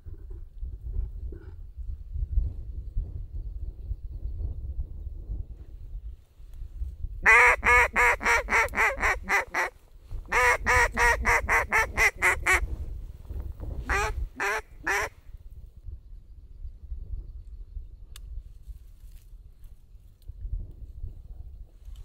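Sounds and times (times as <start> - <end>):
duck call quacks: 7.2 - 9.7, 10.3 - 12.6, 13.9 - 15.1.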